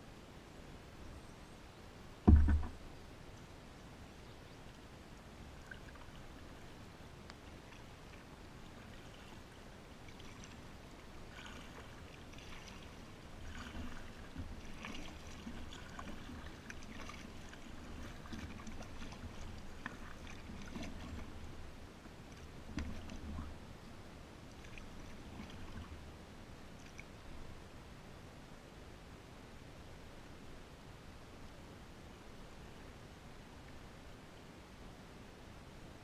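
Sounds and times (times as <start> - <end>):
paddle splashing in water: 7.4 - 23.6, 24.5 - 26.0.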